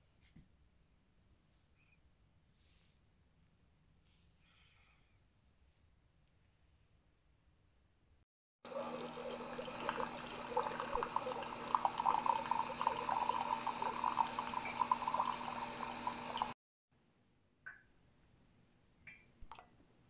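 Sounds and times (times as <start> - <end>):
coffee maker humming: 8.6 - 16.6
coffee spluttering into mug: 8.8 - 16.6.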